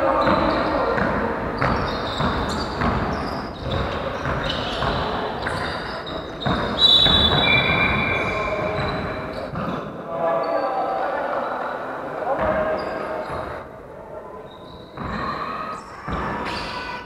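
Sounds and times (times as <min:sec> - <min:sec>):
sneakers squeaking on floor: 0:00.0 - 0:11.0, 0:12.3 - 0:13.7, 0:14.4 - 0:17.0
basketball bouncing on wooden floor: 0:00.2 - 0:08.0.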